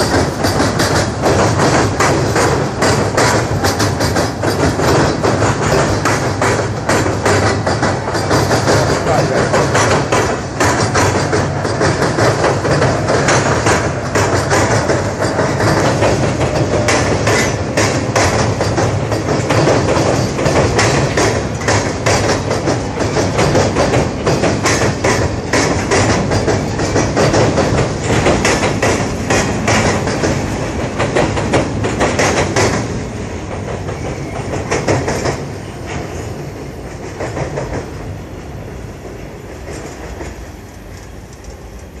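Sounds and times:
train wheels clacking over rail joints: 0.0s - 42.0s.

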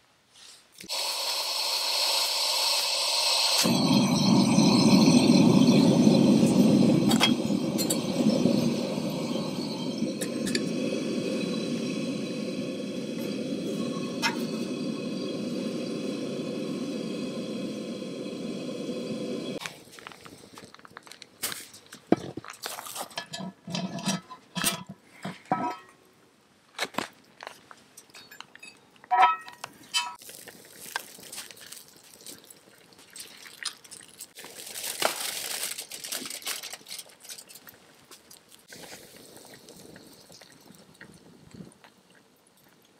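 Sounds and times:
gas burner flame roaring: 0.9s - 20.0s
pot and grill grate scraping: 13.1s - 15.3s, 21.0s - 25.9s, 35.5s - 37.8s
metallic clinks of pot: 28.0s - 30.2s
campfire crackling and popping: 29.6s - 42.9s.

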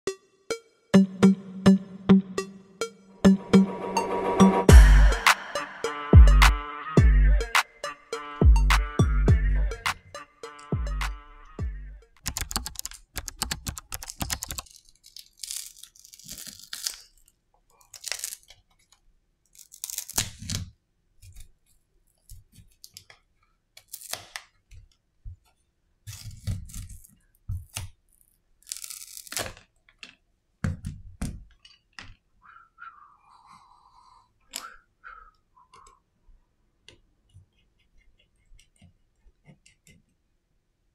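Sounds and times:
intro music with beat: 0.1s - 12.1s
adhesive crackling tears: 14.0s - 18.7s, 19.5s - 20.7s, 26.1s - 29.8s.

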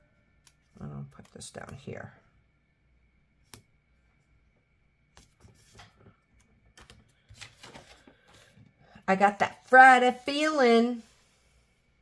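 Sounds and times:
paper rustling: 6.8s - 8.6s.

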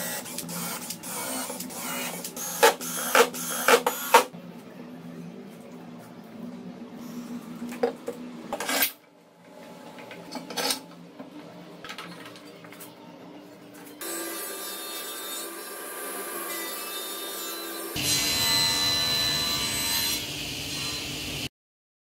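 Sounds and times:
table saw running: 14.0s - 21.5s.

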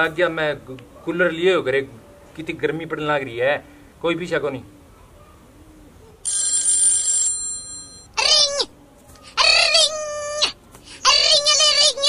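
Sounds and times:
mobile phone ringtone: 6.2s - 8.1s.

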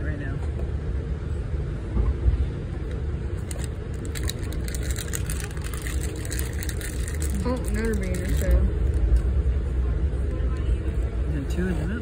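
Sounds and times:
train rumble inside passenger car: 0.0s - 12.0s
rapid clicks and rattles: 3.4s - 9.2s.

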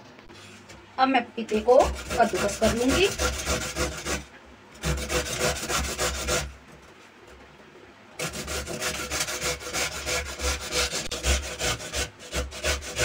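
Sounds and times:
papaya grated on metal grater: 1.4s - 6.6s, 8.2s - 13.0s.

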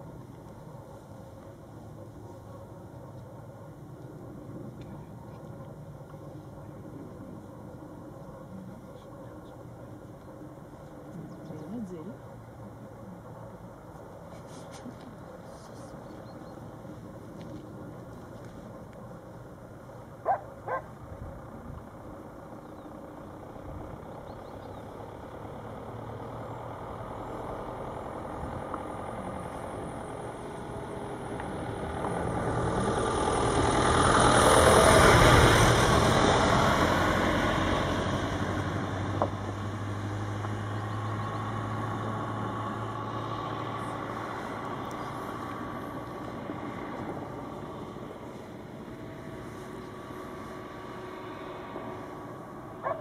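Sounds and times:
low steady hum: 0.0s - 38.0s
motor vehicle passing: 0.0s - 53.0s.

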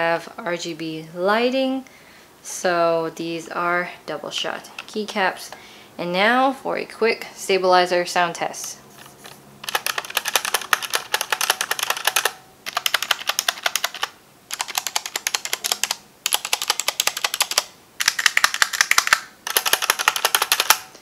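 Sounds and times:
mechanical keyboard keys clacking: 9.6s - 20.9s.

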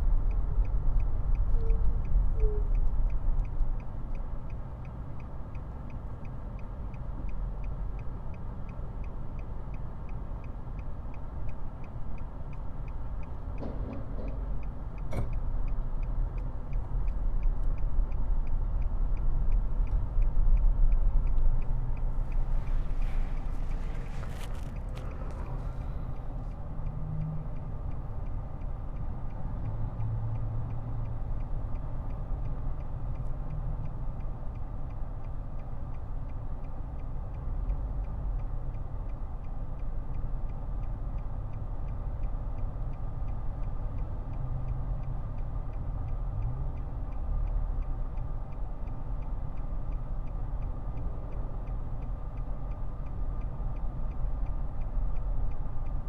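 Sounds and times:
road and engine rumble in car: 0.0s - 56.0s.

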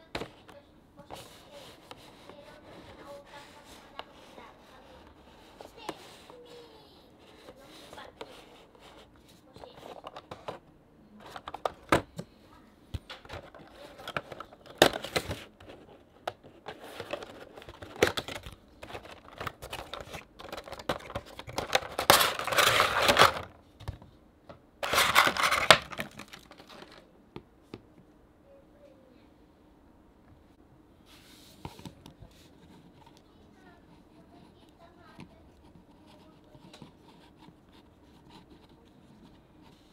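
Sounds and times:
cardboard clicks and scrapes: 13.3s - 23.5s, 24.8s - 27.0s
plastic packaging crinkling: 16.7s - 23.6s, 24.8s - 27.1s.

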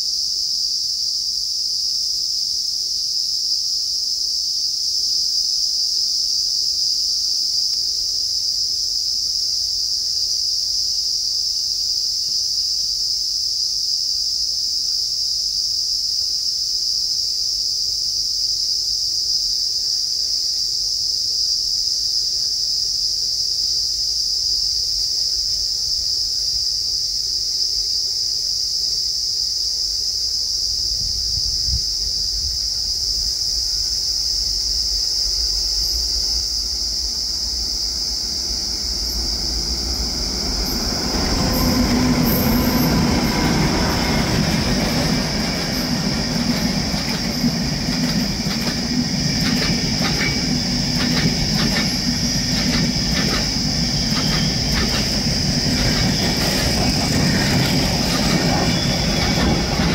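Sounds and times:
high-pitched insect chorus buzzing: 0.0s - 59.9s
faint low train rumble: 29.6s - 59.9s.

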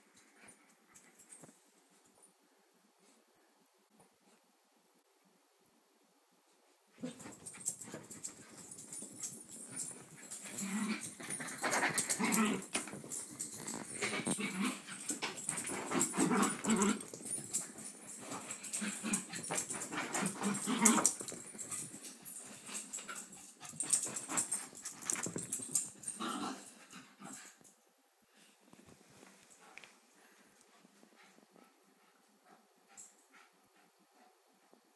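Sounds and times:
dogs play growling: 7.0s - 27.7s
dogs scuffling and clicking: 7.0s - 27.7s.

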